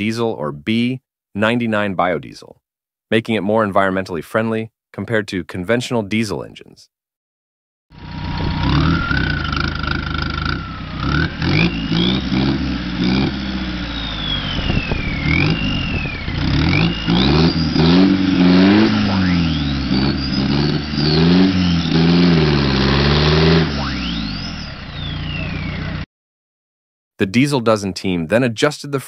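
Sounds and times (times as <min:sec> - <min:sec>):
diesel engine revving: 0:07.9 - 0:26.1
high squealing tones: 0:08.0 - 0:26.0
tyre spinning in burnout: 0:08.0 - 0:26.0.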